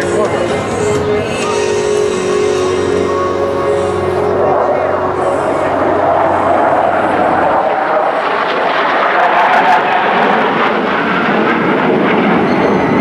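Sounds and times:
jet roar: 0.0 - 13.0.

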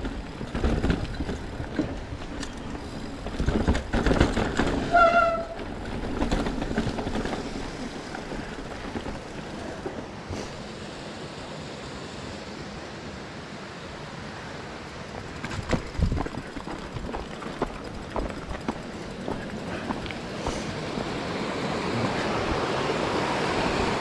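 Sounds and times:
bike knocks and rattles: 0.0 - 10.0, 15.2 - 21.2
tyre and wind noise: 0.0 - 10.7, 14.9 - 24.0.

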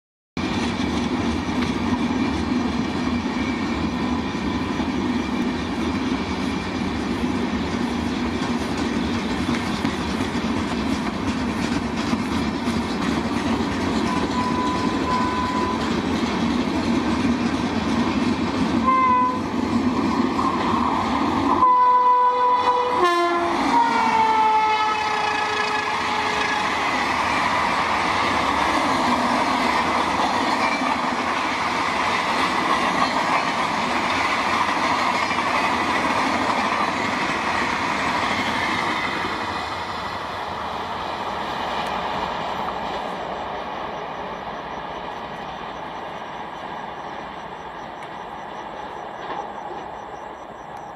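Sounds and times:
train wheels clattering on rails: 0.4 - 21.7, 22.7 - 50.9
two-tone locomotive horn: 14.0 - 16.0, 18.8 - 19.6, 21.5 - 27.0.

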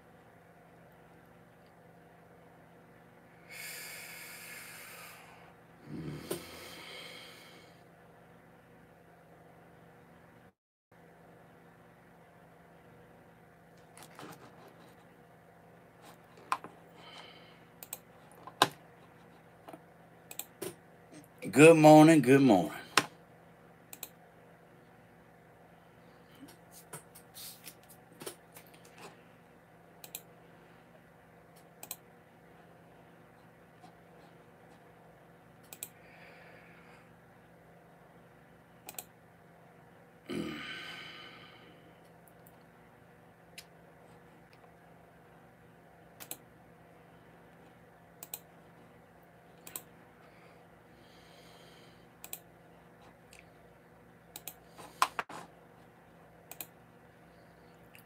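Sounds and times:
faint steady hum: 0.0 - 58.0
man breathing through nose: 3.4 - 7.8, 50.2 - 52.1
man snorting: 3.5 - 7.7, 40.2 - 41.7.

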